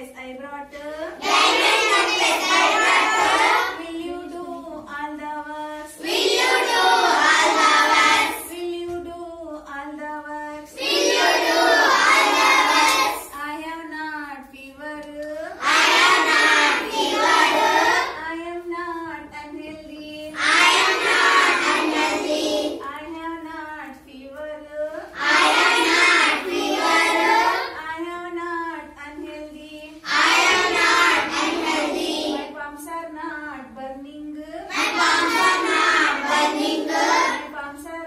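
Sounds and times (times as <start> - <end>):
children singing together: 1.2 - 4.5, 5.9 - 9.0, 10.6 - 13.4, 15.5 - 18.2, 20.2 - 22.9, 25.1 - 27.8, 29.9 - 32.6, 34.7 - 37.5
woman singing: 3.8 - 6.0, 8.4 - 10.7, 13.3 - 15.6, 18.2 - 20.4, 22.8 - 25.2, 27.7 - 30.0, 32.5 - 34.7, 37.4 - 38.0.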